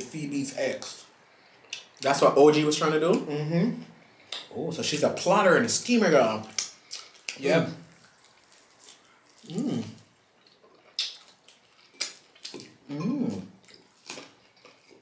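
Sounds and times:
crunching bites and chewing: 6.5s - 12.9s, 13.6s - 15.0s
person humming mm: 9.4s - 10.0s, 12.9s - 13.5s.

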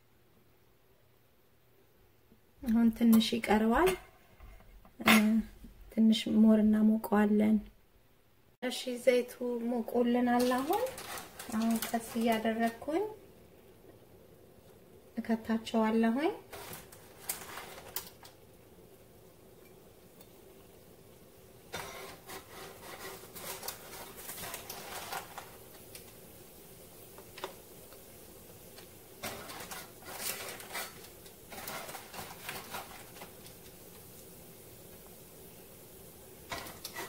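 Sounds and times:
dough frying in hot oil: 8.9s - 37.0s.

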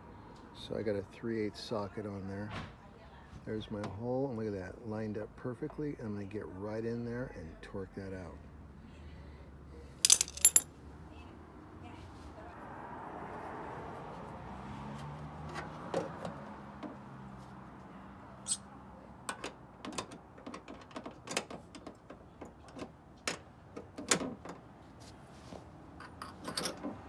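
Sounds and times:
metal tool clicking and knocking: 10.1s - 10.6s.

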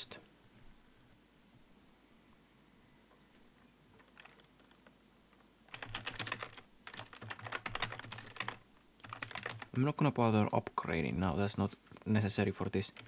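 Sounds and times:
keyboard typing: 4.0s - 4.9s, 5.7s - 9.8s.

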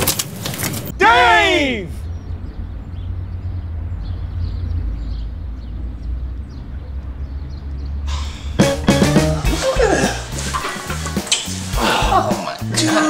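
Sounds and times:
low street rumble: 0.0s - 12.7s.

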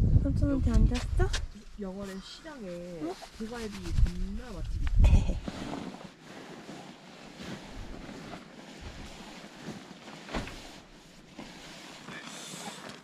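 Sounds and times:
wind on microphone: 0.0s - 1.6s, 3.3s - 5.5s.

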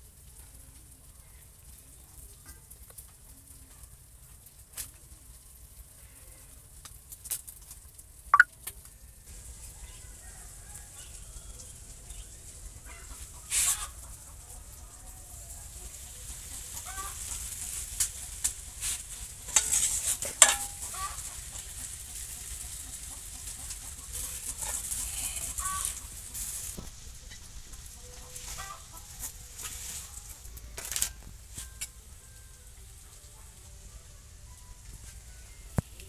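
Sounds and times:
leaves rustling: 9.3s - 14.4s, 15.7s - 32.7s
chickens clucking: 9.8s - 30.5s
steel plate clinking: 19.5s - 21.2s.

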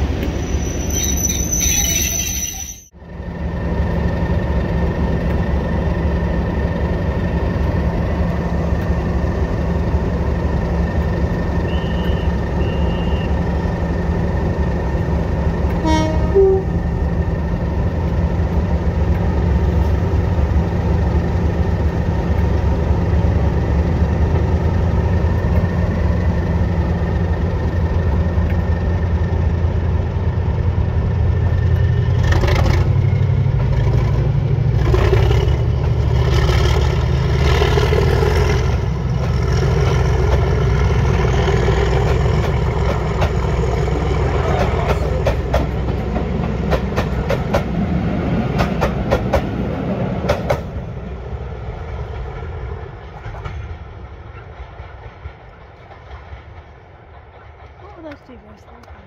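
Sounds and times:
locomotive engine droning: 0.0s - 59.0s
locomotive horn toot: 11.6s - 13.4s, 15.8s - 16.8s.

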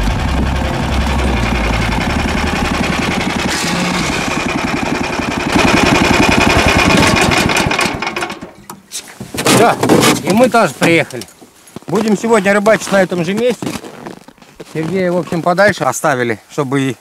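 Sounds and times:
snowmobile engine running: 0.0s - 8.3s.

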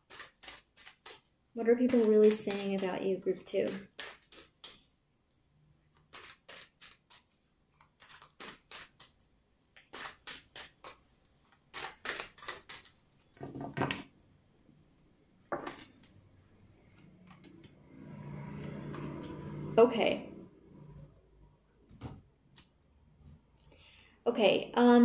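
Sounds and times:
cards being shuffled: 0.1s - 4.9s, 6.0s - 9.2s, 9.8s - 13.8s.

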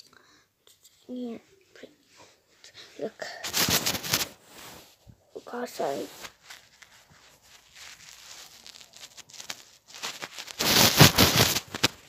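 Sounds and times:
fingers rubbing phone microphone: 3.4s - 5.0s, 5.8s - 12.0s.

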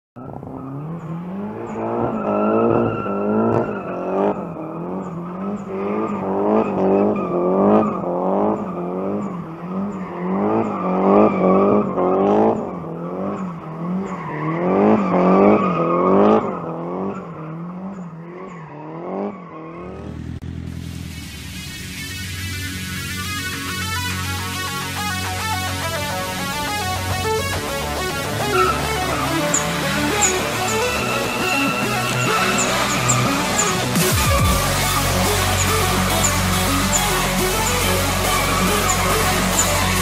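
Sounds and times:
car engine revving hard: 0.2s - 40.0s
tyres squealing: 27.5s - 40.0s.

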